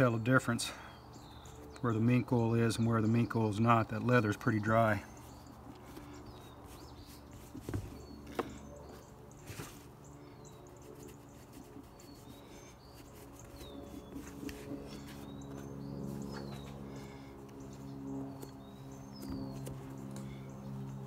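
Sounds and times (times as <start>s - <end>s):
low steady hum: 0.0s - 21.0s
small birds chirping: 0.0s - 21.0s
cloth rag rubbing leather: 10.7s - 15.4s.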